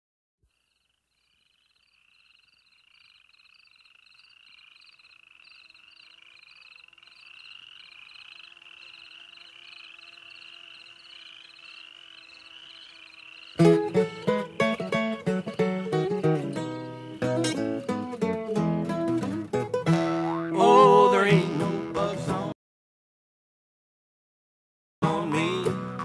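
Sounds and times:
high trilled chirping calls: 0.5s - 15.8s.

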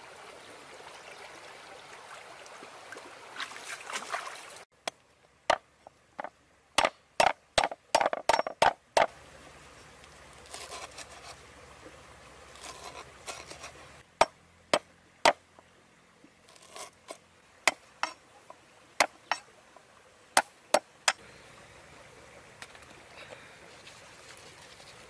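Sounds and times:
sharp irregular knocks: 6.2s - 9.1s.

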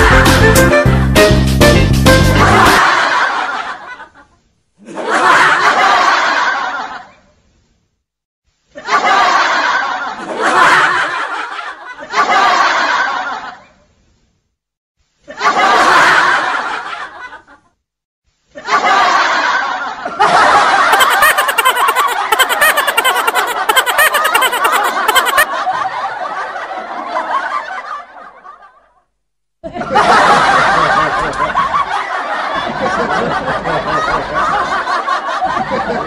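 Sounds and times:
people laughing: 2.3s - 7.2s, 8.8s - 13.7s, 15.3s - 17.6s, 18.6s - 28.8s, 29.6s - 36.0s.

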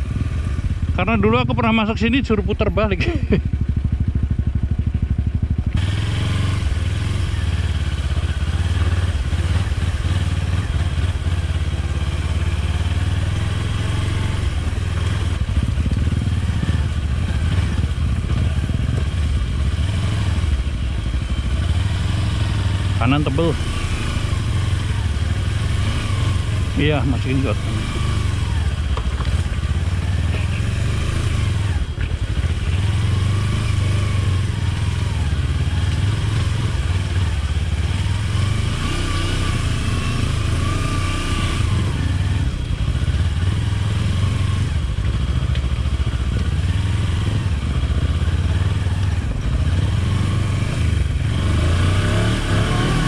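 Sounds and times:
motorcycle engine running: 0.0s - 53.0s.

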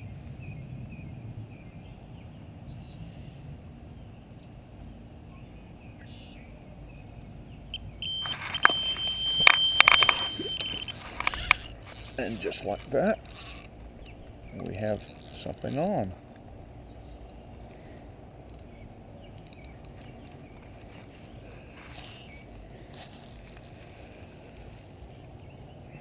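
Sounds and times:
light wind: 0.0s - 26.0s
bite alarm beeping: 7.7s - 12.6s.

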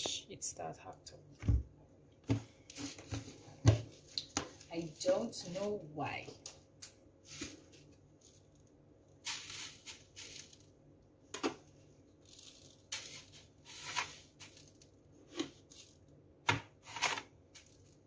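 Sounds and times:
sugar pouring hiss: 9.2s - 10.7s, 12.4s - 14.8s
gritty sugar scrapes: 12.8s - 14.6s.

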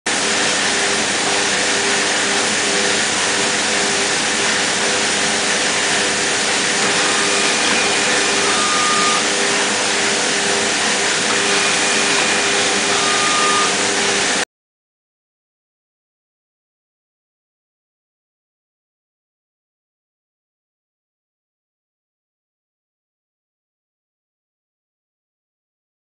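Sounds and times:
packing line machinery: 0.1s - 14.4s
brief high tone: 6.8s - 9.7s, 11.3s - 13.8s.

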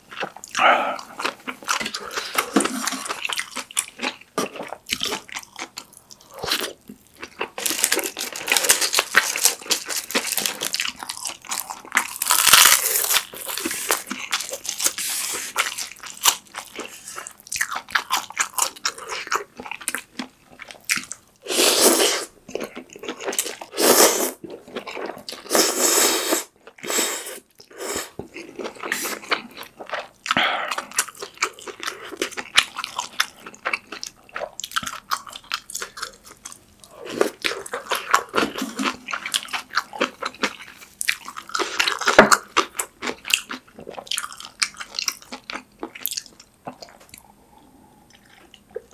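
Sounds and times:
wet chewing with crunches: 0.0s - 21.2s, 26.5s - 48.9s
slurping noodles: 21.4s - 22.3s, 23.7s - 24.4s, 25.4s - 28.2s.

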